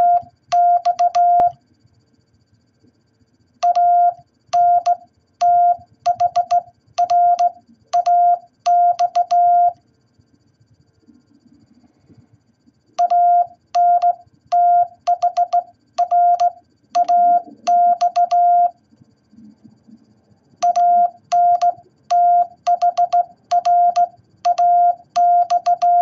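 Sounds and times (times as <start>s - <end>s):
morse code beeps: 0.0s - 1.6s, 3.6s - 9.8s, 13.0s - 18.8s, 20.6s - 26.0s.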